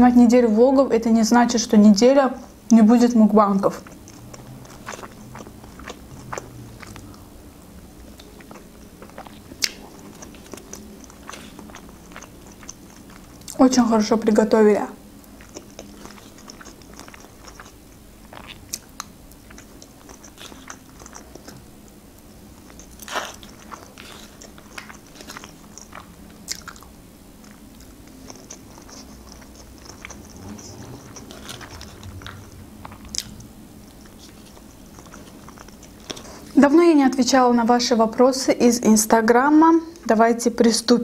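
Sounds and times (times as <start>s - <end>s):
person chewing food: 3.6s - 13.9s, 15.0s - 36.6s.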